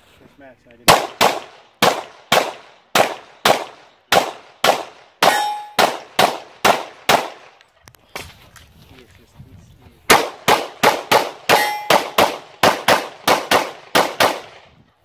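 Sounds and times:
pistol shots: 0:00.8 - 0:07.6, 0:10.1 - 0:14.8
steel targets ringing: 0:05.2 - 0:05.8, 0:11.5 - 0:12.0.

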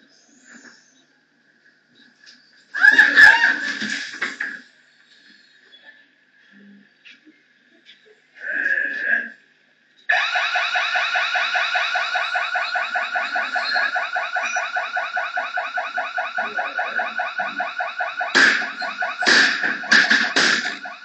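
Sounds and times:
electronic alarm pulsing: 0:10.1 - 0:21.0
hammer crashing on glass: 0:18.4 - 0:21.0.

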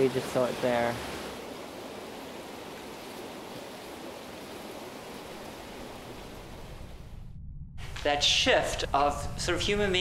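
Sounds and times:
creek water rushing: 0:00.0 - 0:06.7.

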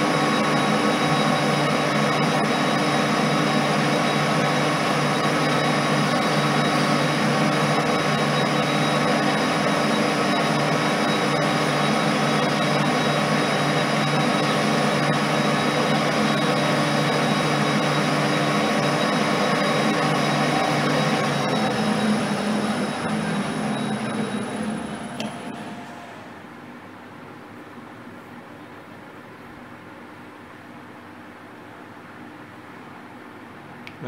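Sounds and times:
lathe humming: 0:00.0 - 0:26.8.

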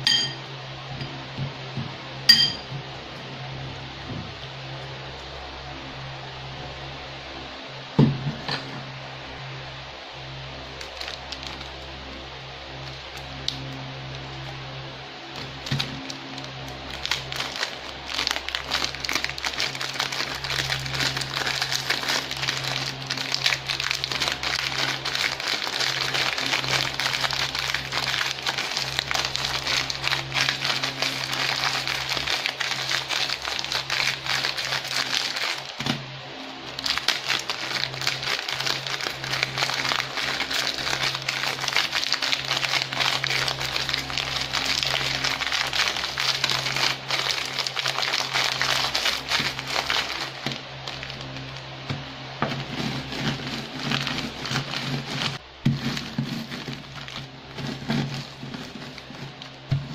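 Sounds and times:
plastic wrappers crinkling: 0:10.7 - 0:11.9, 0:15.3 - 0:36.0, 0:36.6 - 0:59.9
crackers crackling breaking: 0:10.8 - 0:11.8, 0:15.4 - 0:36.0, 0:36.7 - 0:51.7.

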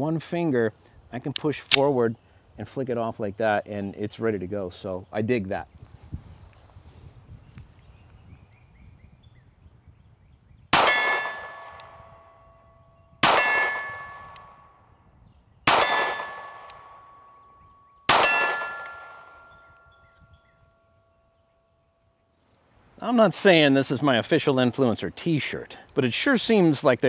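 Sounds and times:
pistol shots: 0:10.7 - 0:12.4, 0:13.2 - 0:14.6, 0:15.7 - 0:17.4, 0:18.1 - 0:19.7
steel plate ringing: 0:10.8 - 0:14.7, 0:15.8 - 0:19.9.

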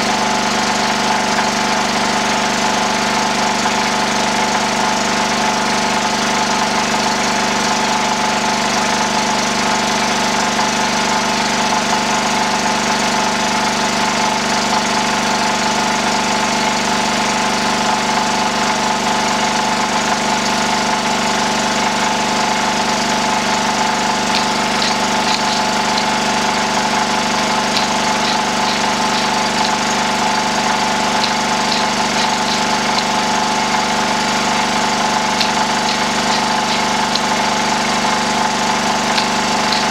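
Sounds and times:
generator engine running: 0:21.3 - 0:39.9
faint high ticks: 0:24.3 - 0:26.2, 0:27.7 - 0:30.0, 0:31.2 - 0:33.2, 0:35.4 - 0:37.6.

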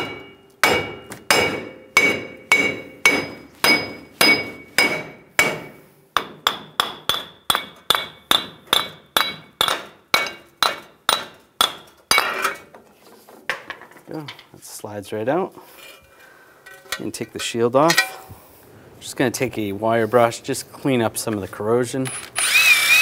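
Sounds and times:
sledgehammer striking metal: 0:00.0 - 0:12.4.

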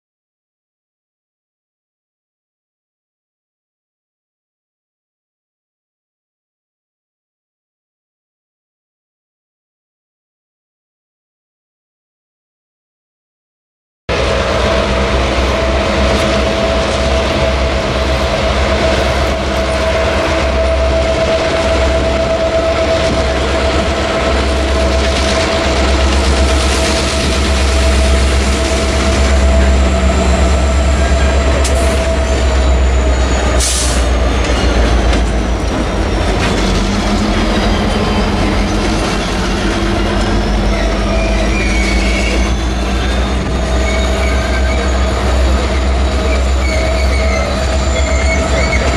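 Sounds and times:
locomotive deep rumble: 0:14.1 - 0:48.9
train wheels on rails: 0:14.1 - 0:48.9
high-pitched wheel squeal: 0:15.4 - 0:48.9.

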